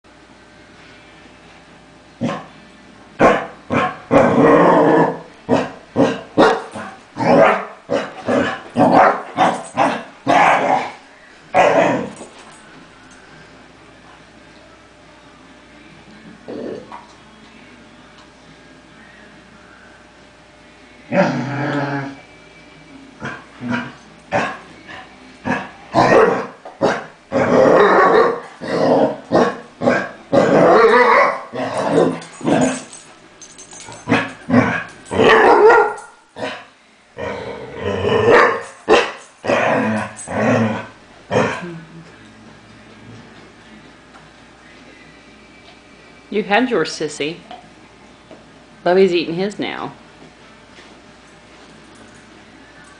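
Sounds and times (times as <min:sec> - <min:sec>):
dog barking and baying: 0:03.2 - 0:04.2, 0:05.5 - 0:11.0, 0:25.5 - 0:27.1, 0:29.3 - 0:32.9, 0:34.1 - 0:36.6, 0:38.3 - 0:39.8.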